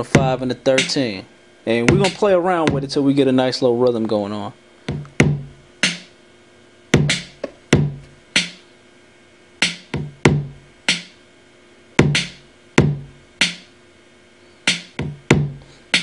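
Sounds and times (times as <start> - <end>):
drum machine loop: 0.0 - 3.0, 4.8 - 6.2, 6.9 - 8.7, 9.6 - 11.2, 12.0 - 13.8, 14.7 - 16.0.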